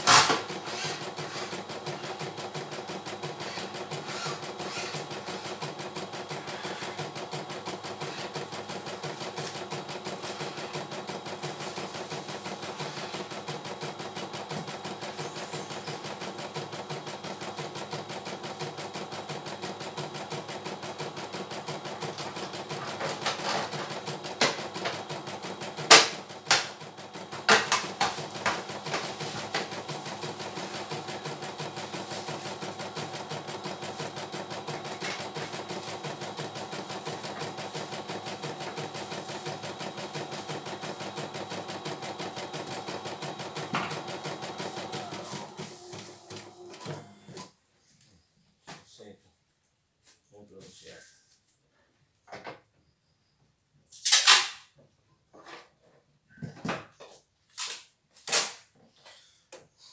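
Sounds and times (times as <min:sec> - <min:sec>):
embroidery machine stitching: 0:00.0 - 0:47.5.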